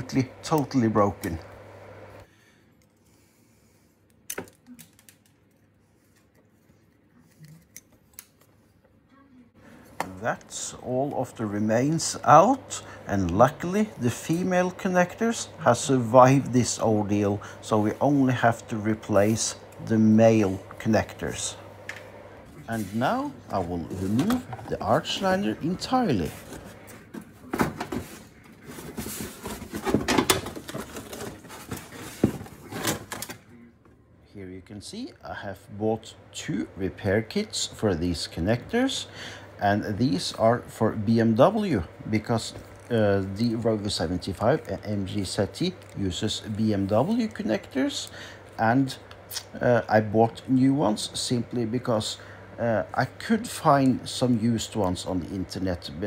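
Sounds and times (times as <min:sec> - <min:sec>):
stiff plastic scraping and rustling: 0:22.7 - 0:33.5.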